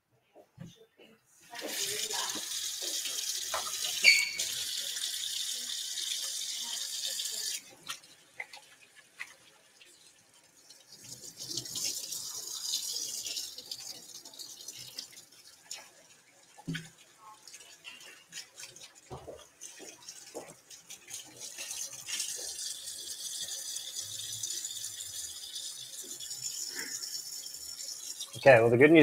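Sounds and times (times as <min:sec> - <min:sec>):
hands washing under water: 0:01.5 - 0:28.4
tap running into steel sink: 0:01.6 - 0:04.7
brief squeak: 0:04.0 - 0:04.5.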